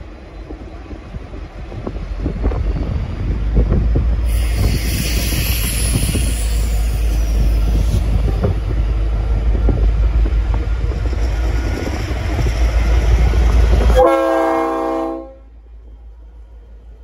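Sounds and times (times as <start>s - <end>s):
diesel locomotive rumbling: 0.0s - 17.0s
train horn chord: 13.9s - 15.5s.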